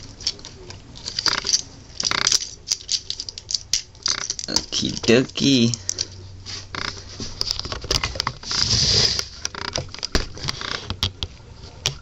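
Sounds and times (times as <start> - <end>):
plastic toy parts clicking: 0.2 - 6.1.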